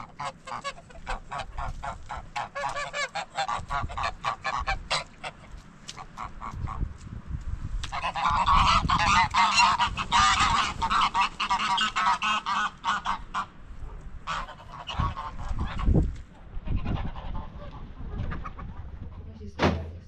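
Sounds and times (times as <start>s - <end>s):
poultry calling: 0.0s - 6.9s, 7.8s - 19.3s
low thump: 19.6s - 20.0s.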